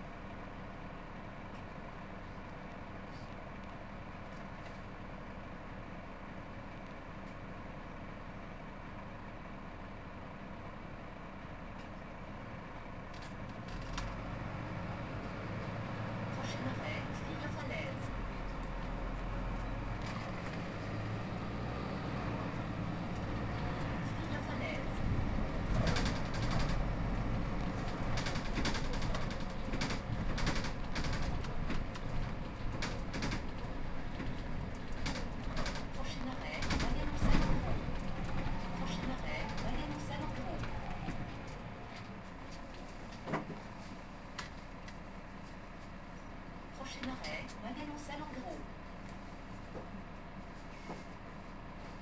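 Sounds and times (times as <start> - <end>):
bus diesel engine idling: 0.0 - 52.0
deeper rumble: 13.8 - 42.5.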